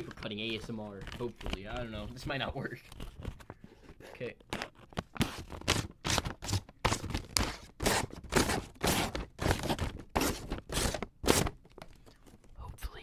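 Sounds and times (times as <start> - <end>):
scissors cutting paper: 5.2 - 11.5.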